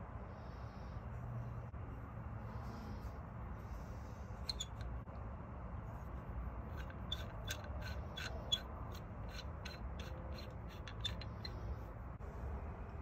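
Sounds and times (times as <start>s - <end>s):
light metallic ticks and scrapes: 4.4s - 5.2s, 6.6s - 11.7s.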